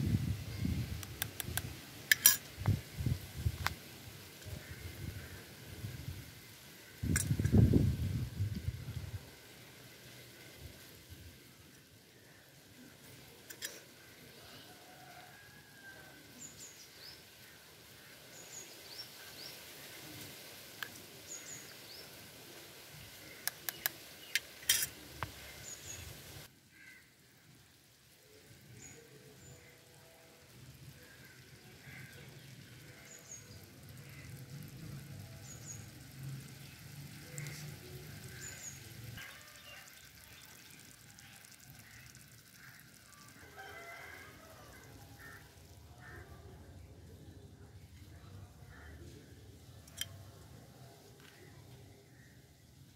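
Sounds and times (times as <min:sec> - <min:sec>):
sharp clicks: 0:01.0 - 0:02.3.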